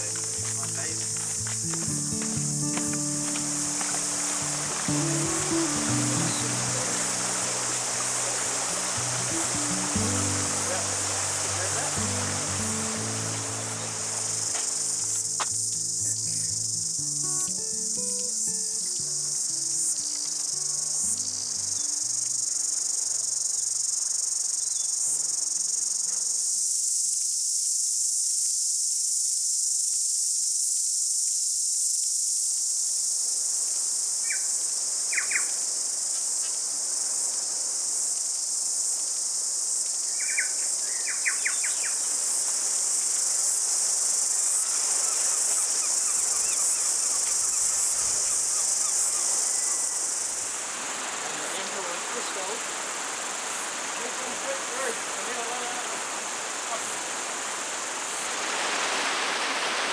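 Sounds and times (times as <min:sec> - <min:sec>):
soft low music: 0:00.0 - 0:21.8
cicadas buzzing: 0:00.0 - 0:59.9
bird chirping: 0:45.0 - 0:50.1.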